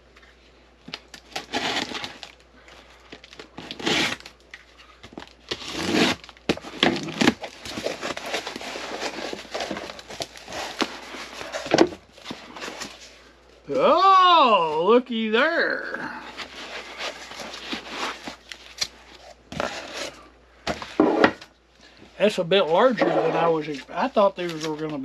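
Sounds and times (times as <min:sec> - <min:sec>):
packing tape tearing: 0:00.8 - 0:02.4, 0:03.1 - 0:13.1
cardboard flaps rustling: 0:03.0 - 0:13.2, 0:16.3 - 0:21.5.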